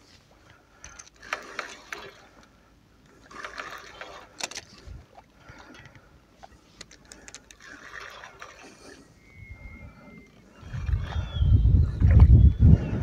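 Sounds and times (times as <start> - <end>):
waves lapping against rock: 3.1 - 5.8, 6.4 - 9.1.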